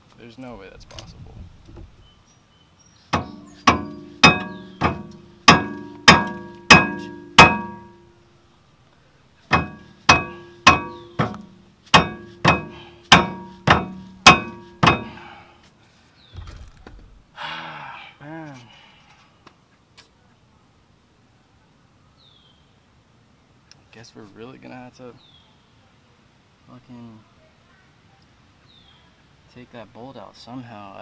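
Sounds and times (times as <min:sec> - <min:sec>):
mallet striking metal: 0:03.2 - 0:08.0, 0:09.5 - 0:15.3.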